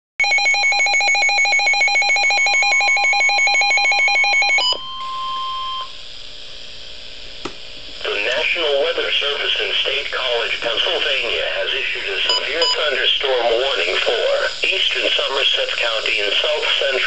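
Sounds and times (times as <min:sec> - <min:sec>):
steady warning tone: 0:00.2 - 0:06.0, 0:08.0 - 0:17.0
rapidly pulsing electronic beep: 0:12.2 - 0:14.1.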